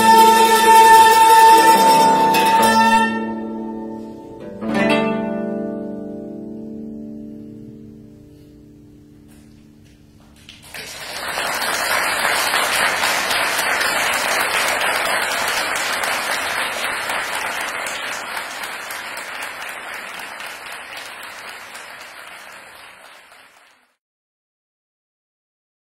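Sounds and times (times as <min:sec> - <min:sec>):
music: 0:00.0 - 0:10.6
audience applauding: 0:10.4 - 0:24.0.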